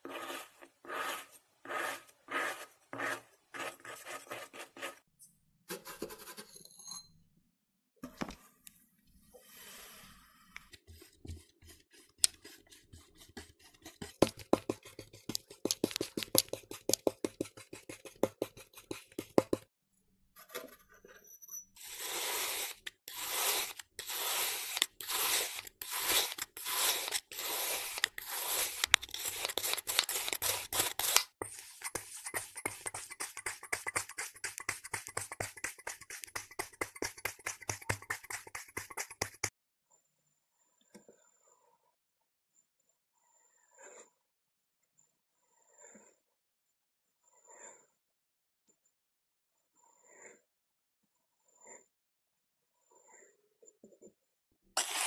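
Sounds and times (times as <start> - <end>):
knife sawing through sand: 0.0 - 5.0, 10.8 - 19.6, 21.8 - 39.5, 54.8 - 55.0.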